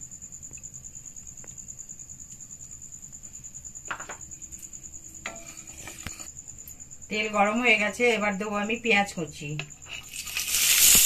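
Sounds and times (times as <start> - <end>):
spatula scraping pan: 5.2 - 6.3, 9.6 - 11.0.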